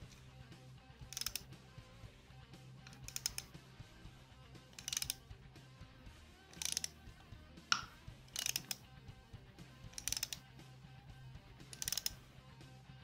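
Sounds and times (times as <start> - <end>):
socket ratchet clicking: 1.0 - 1.6, 2.8 - 3.6, 4.6 - 5.4, 6.4 - 10.6, 11.6 - 12.3.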